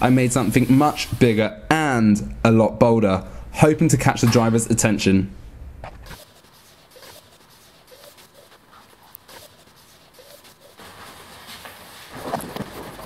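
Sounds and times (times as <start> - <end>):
marker squeaking on paper: 5.9 - 11.3.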